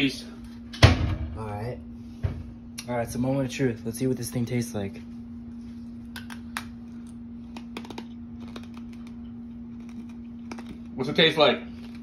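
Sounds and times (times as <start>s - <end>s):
steady low hum: 0.0s - 12.0s
hard candy crunching between teeth: 6.2s - 12.0s.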